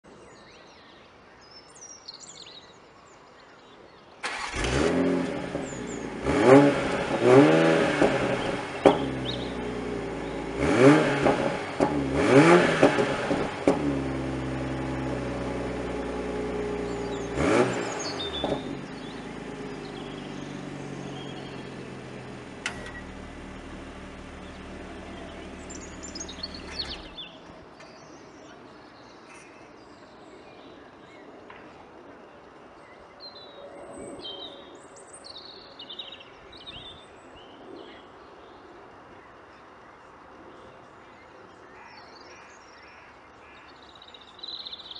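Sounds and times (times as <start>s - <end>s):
faint birdsong: 0.0s - 44.9s
car engine revving and idling: 4.3s - 27.3s.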